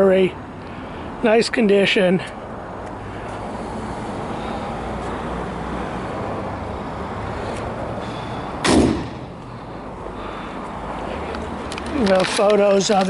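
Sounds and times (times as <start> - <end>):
loud thump: 8.6 - 9.3.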